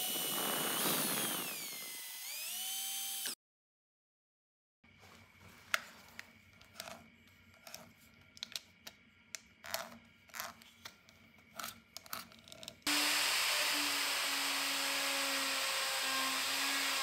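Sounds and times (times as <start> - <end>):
router whining: 0.0 - 3.4, 12.8 - 17.0.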